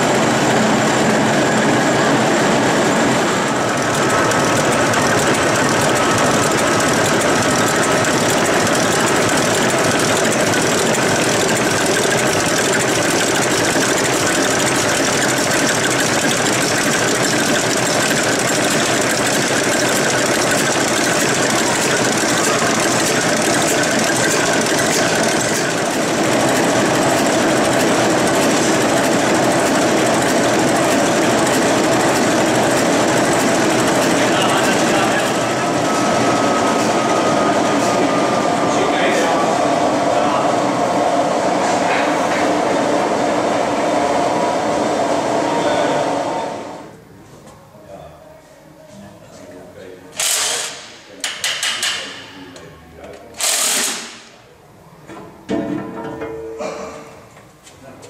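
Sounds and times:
diesel engine clattering: 0:00.0 - 0:39.8.

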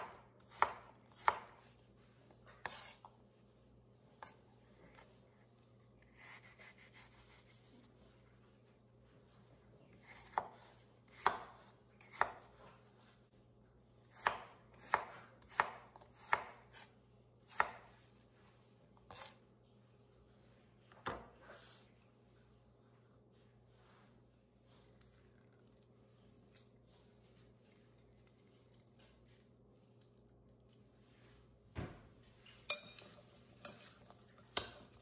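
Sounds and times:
knife chopping on cutting board: 0:00.0 - 0:01.7, 0:10.0 - 0:12.6, 0:14.1 - 0:18.0.

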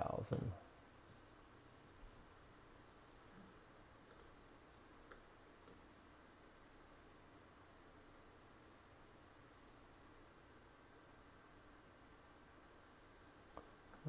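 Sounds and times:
computer mouse clicks: 0:04.0 - 0:04.4, 0:05.0 - 0:05.9.

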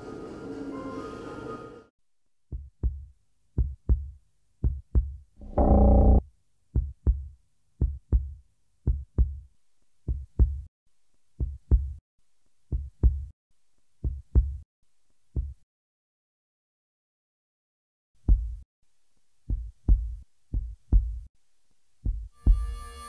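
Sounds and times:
amplified heartbeat: 0:02.5 - 0:06.2, 0:06.8 - 0:09.4, 0:10.1 - 0:10.7, 0:11.4 - 0:12.0, 0:14.0 - 0:14.6, 0:18.3 - 0:18.6, 0:19.5 - 0:21.3, 0:22.0 - 0:22.8
loud low held tone: 0:05.4 - 0:06.2.

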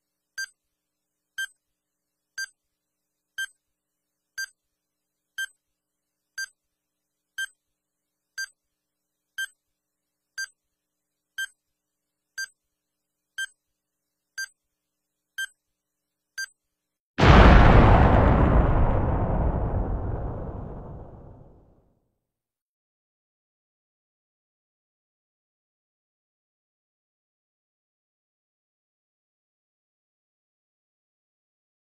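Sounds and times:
loud blast of noise: 0:17.2 - 0:21.7.

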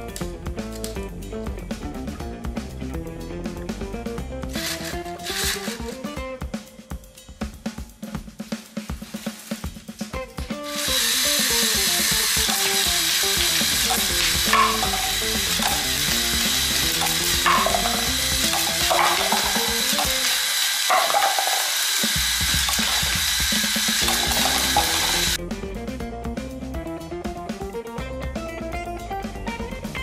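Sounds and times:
launcher motor whirring: 0:04.6 - 0:06.2, 0:10.6 - 0:25.4
balls firing clacks: 0:11.4 - 0:25.4.

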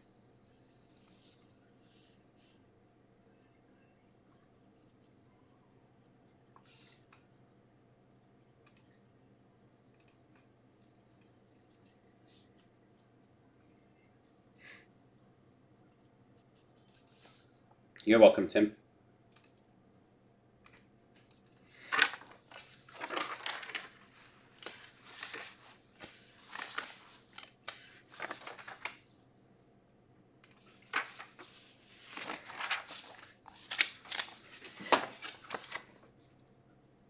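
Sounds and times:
material crinkling and rustling: 0:21.9 - 0:29.1, 0:30.8 - 0:36.0.

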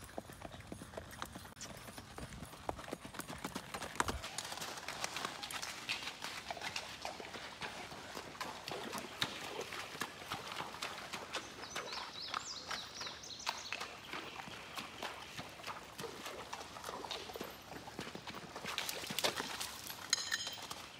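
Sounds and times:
water splashing: 0:04.3 - 0:12.1
hooves knocking on stones: 0:19.3 - 0:20.9.

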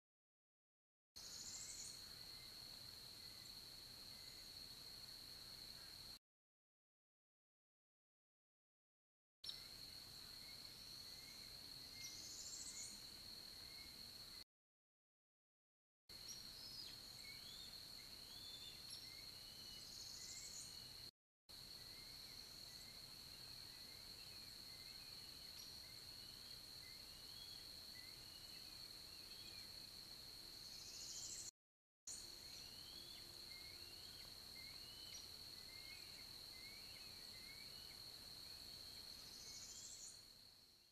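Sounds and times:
bird chirps: 0:16.2 - 0:20.9, 0:38.9 - 0:40.2.

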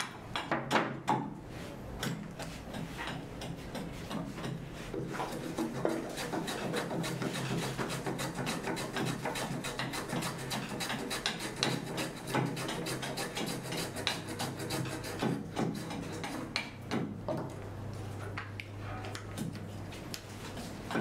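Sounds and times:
hand plane shaving wood: 0:03.6 - 0:16.6.

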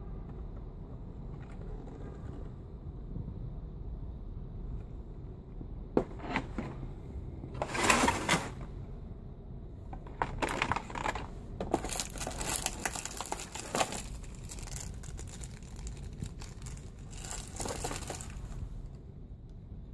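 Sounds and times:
plastic packaging rustling and clicking: 0:10.0 - 0:18.8.

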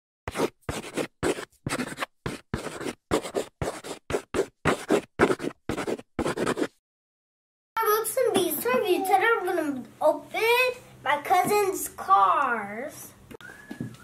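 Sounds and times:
chalk scratching on blackboard: 0:00.3 - 0:06.8.

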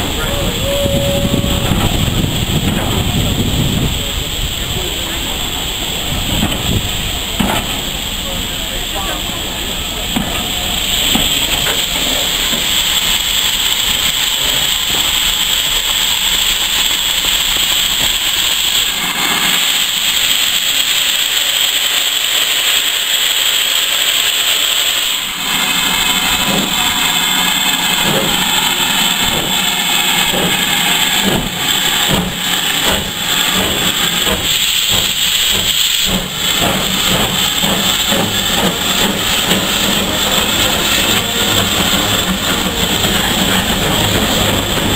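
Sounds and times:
locomotive engine beat: 0:00.0 - 0:21.3, 0:24.8 - 0:44.9
steam locomotive hissing: 0:00.0 - 0:44.9.

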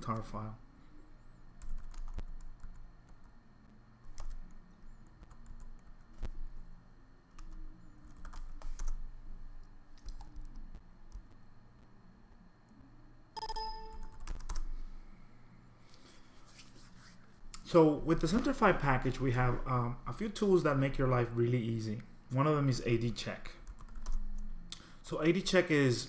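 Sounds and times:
computer keyboard typing: 0:01.6 - 0:03.3, 0:04.0 - 0:06.3, 0:07.3 - 0:09.0, 0:09.9 - 0:11.3, 0:13.4 - 0:14.7, 0:23.6 - 0:24.4
electronic ringing tone: 0:13.4 - 0:14.3.

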